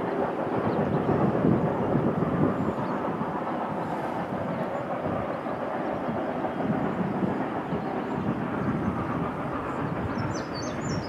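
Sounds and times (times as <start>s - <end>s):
distant steam train: 0.0s - 11.0s
bird chirping: 9.7s - 11.0s.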